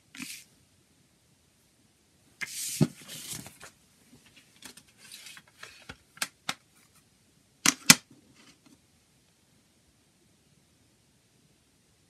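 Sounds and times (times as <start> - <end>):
paper handling noise: 2.4 - 6.3.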